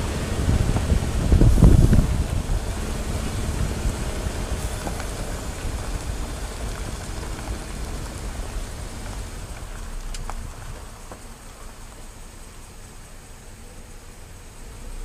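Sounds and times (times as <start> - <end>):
vehicle rumble on dirt road: 0.0 - 15.0.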